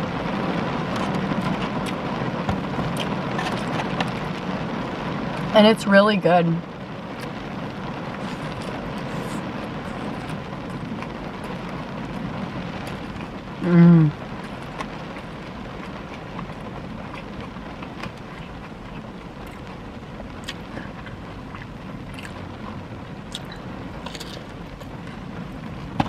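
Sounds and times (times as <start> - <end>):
rain on car roof: 0.0 - 26.0
woman humming with mouth full: 13.6 - 14.2.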